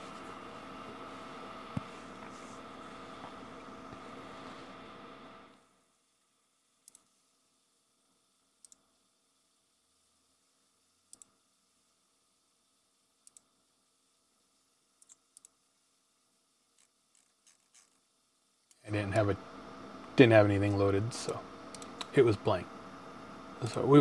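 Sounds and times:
computer mouse clicks: 6.8 - 7.1, 8.6 - 8.9, 11.1 - 11.4, 13.2 - 13.5, 15.0 - 15.6, 21.7 - 22.1.

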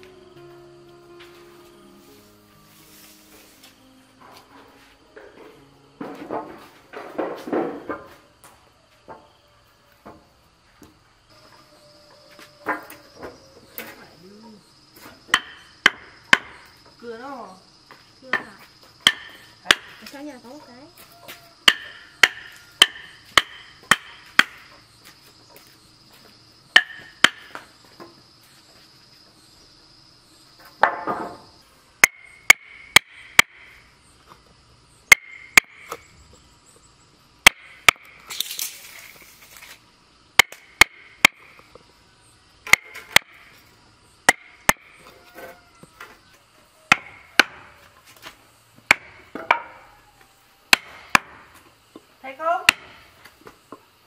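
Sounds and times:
wooden block striking chisel: 18.3 - 20.0, 21.6 - 24.7, 26.8 - 27.6, 32.0 - 33.7, 46.9 - 47.7, 48.9 - 49.8.

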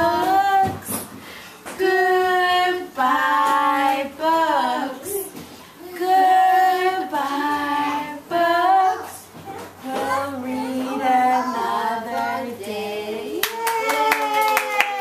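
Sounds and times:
woman and children singing: 0.0 - 14.2
hand clapping: 13.4 - 15.0.

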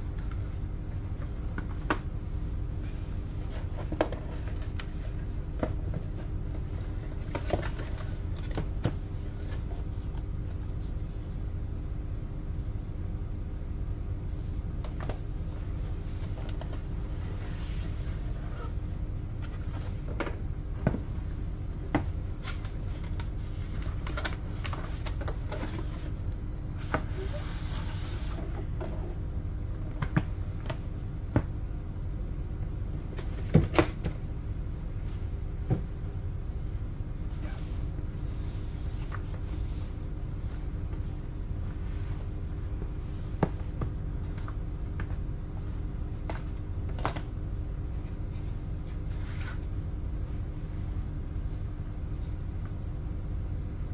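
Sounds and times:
steady low hum: 0.0 - 53.9
box sliding rustle: 26.9 - 28.6.

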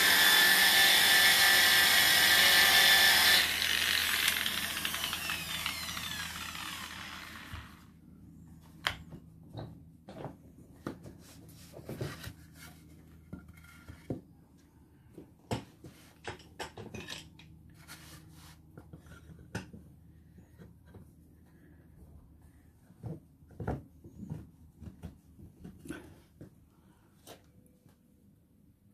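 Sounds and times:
power tool whine winding down: 0.0 - 7.9.

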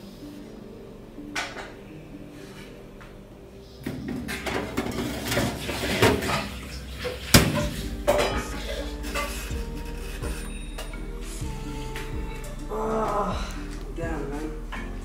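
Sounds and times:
baking tray clattering and scraping: 3.9 - 9.6.

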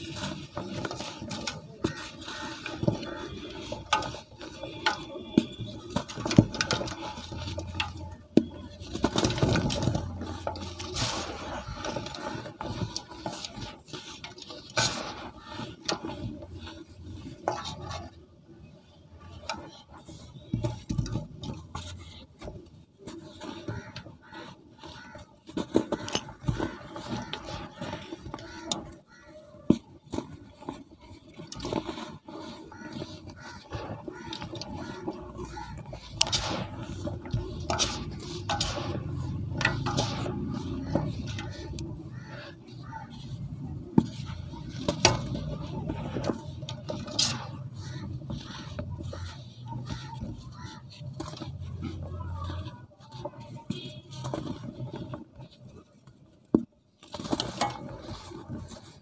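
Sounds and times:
hands crumbling cement in a bowl: 0.0 - 18.2, 19.2 - 55.3.

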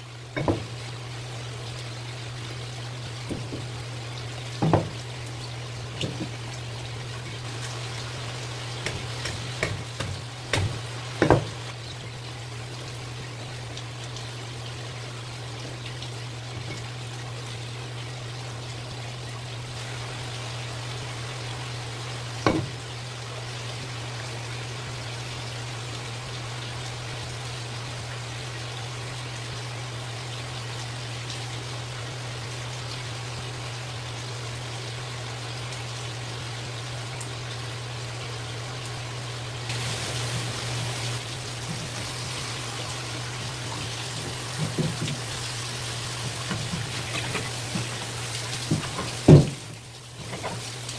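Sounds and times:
running water: 0.0 - 50.9
knife chopping through fish bones: 8.8 - 11.5.

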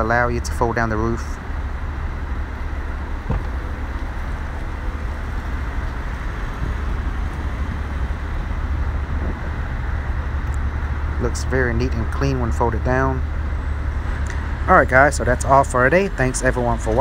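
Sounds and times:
low rumble: 0.0 - 16.8.

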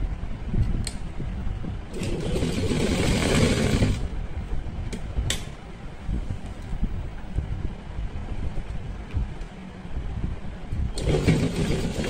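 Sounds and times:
sewing machine stitching: 1.9 - 4.1, 11.0 - 12.0.

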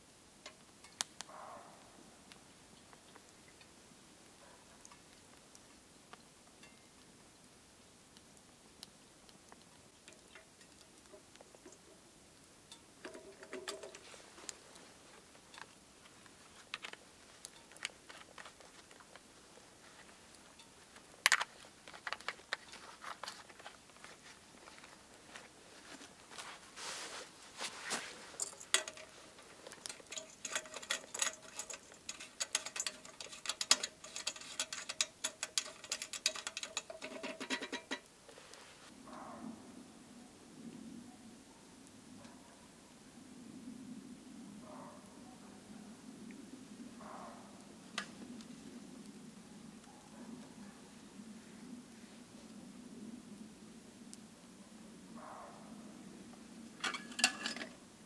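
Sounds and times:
wood fire crackling and popping: 0.3 - 1.4, 2.3 - 38.9, 47.6 - 49.2
faint steady tone: 5.6 - 9.2.

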